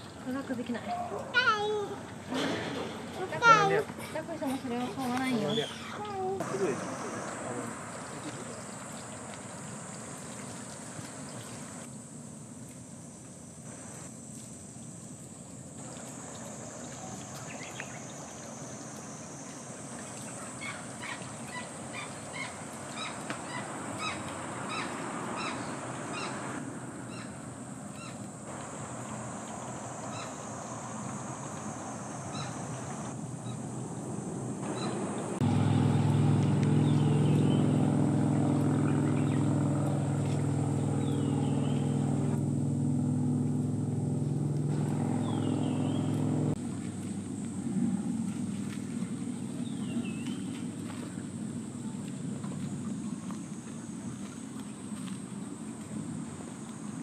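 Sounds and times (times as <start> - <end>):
steady high hiss: 6.2 - 38.2
loud low engine hum: 33.8 - 49.7
bird chirps: 45.0 - 46.3.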